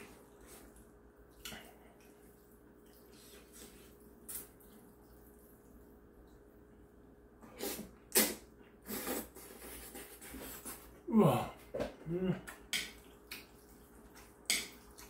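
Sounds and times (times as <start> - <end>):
person slurping noodles: 7.6 - 11.4.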